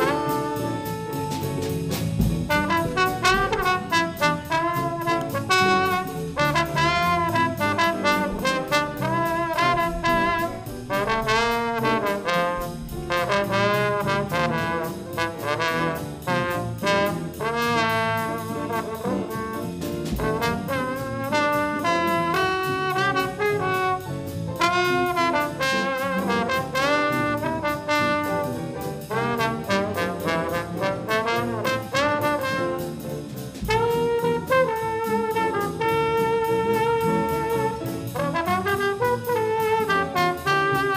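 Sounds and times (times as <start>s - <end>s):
drums with cymbal pulse: 0.0s - 40.9s
piano: 0.0s - 40.9s
trombone jazz solo: 0.0s - 40.9s.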